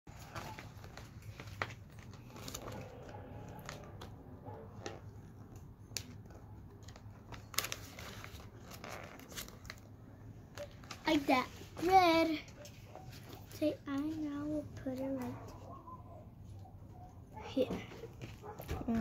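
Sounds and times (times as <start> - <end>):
paper crinkling and peeling: 0.1 - 14.2.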